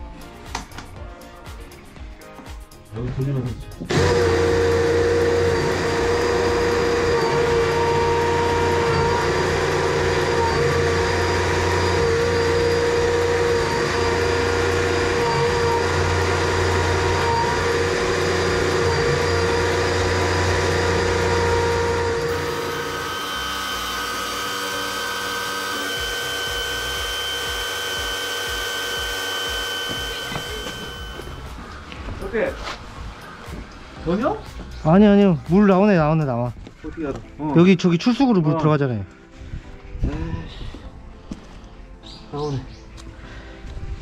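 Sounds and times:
drain cleaning machine motor drone: 3.9 - 31.6.

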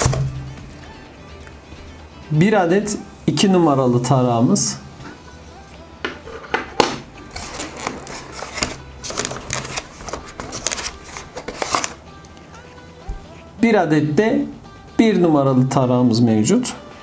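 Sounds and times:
hands rustling in cardboard box: 7.3 - 12.0.

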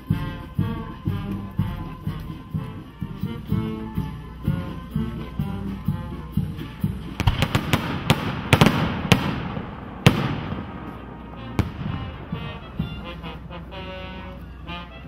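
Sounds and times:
fireworks bangs and crackles: 7.1 - 13.0.

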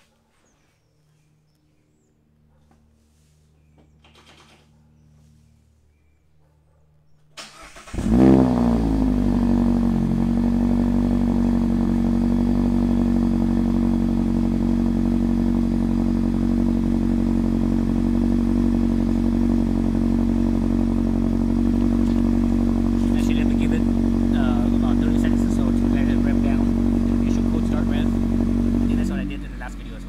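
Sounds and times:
car engine starting and idling: 7.3 - 30.0.

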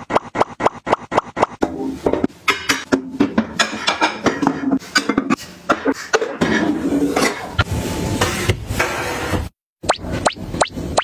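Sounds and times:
kitchenware clattering: 1.6 - 7.6.

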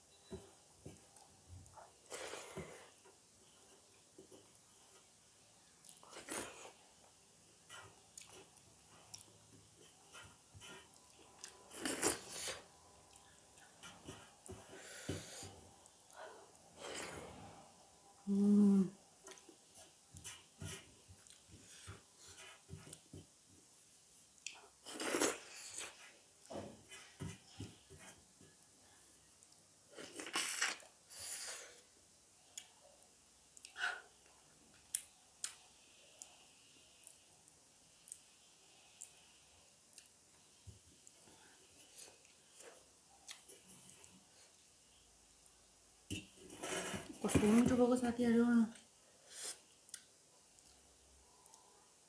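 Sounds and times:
person humming mmm: 18.2 - 19.0.

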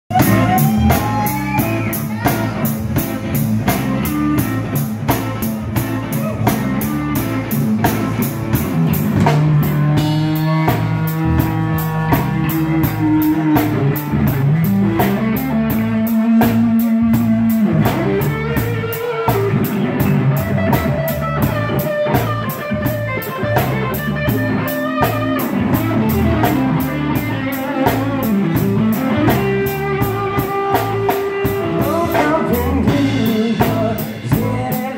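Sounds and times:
electric bass: 0.0 - 34.9
drum kit: 0.1 - 34.9
electric guitar: 0.1 - 34.9.

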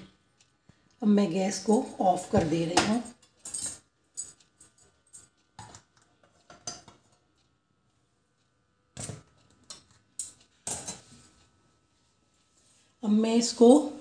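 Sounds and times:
metal cookware clinking: 5.6 - 7.0, 9.7 - 11.1.

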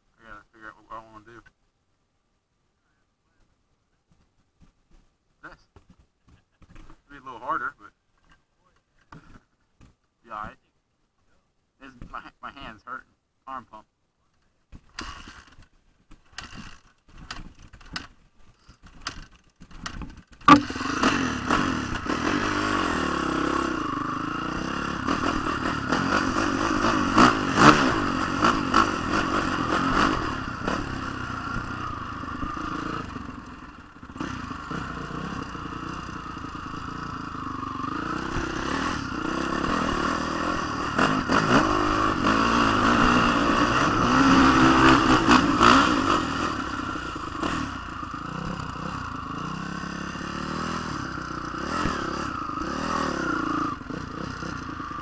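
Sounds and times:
dirt bike engine revving: 15.0 - 15.6, 19.1 - 55.0.

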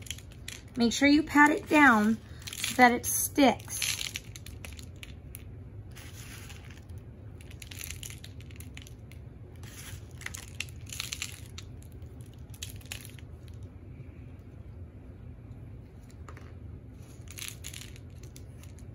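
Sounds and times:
steady low hum: 0.0 - 18.9
bird seed rustling and crunching: 3.8 - 9.0.

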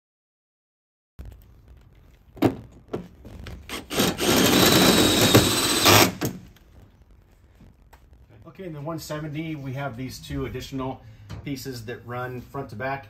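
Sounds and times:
drill boring through sheet metal: 3.7 - 6.4
drill knocking against metal: 3.7 - 6.4.

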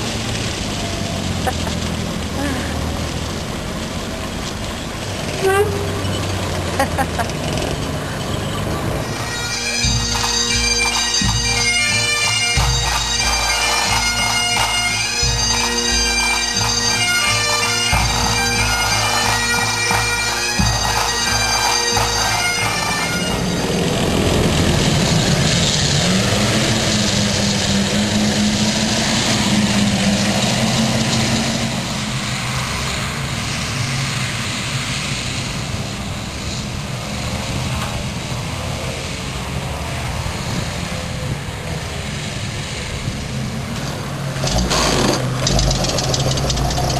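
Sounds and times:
bagpipes playing over a drone: 0.0 - 7.3, 8.1 - 43.7
tank engine running: 0.0 - 46.9
bass drum beats: 9.8 - 23.5.

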